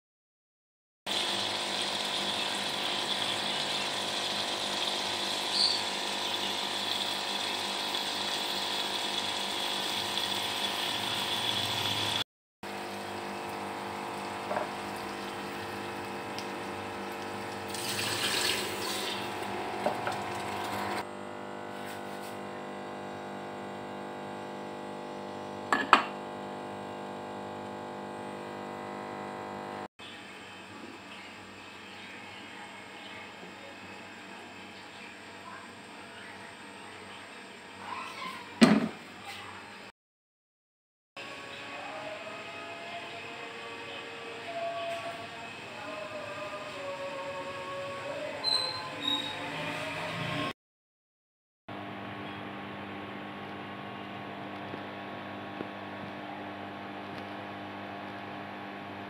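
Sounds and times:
pressure cooker hiss and hum: 0:01.1 - 0:29.9.

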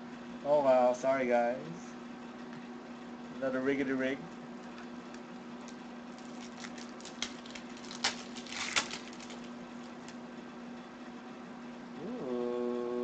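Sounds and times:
foil wrapper crinkling and tearing: 0:05.1 - 0:10.2.

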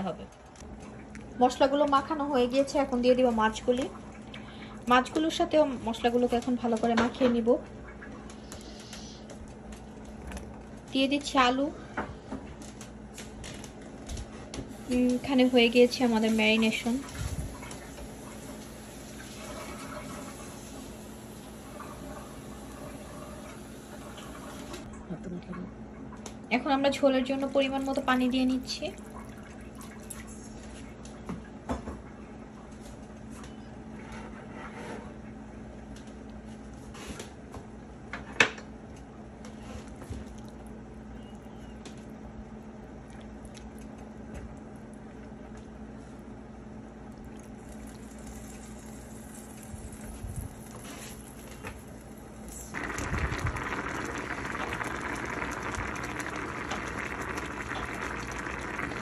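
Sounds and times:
broth bubbling in a pan: 0:14.7 - 0:24.9, 0:39.5 - 0:59.0.

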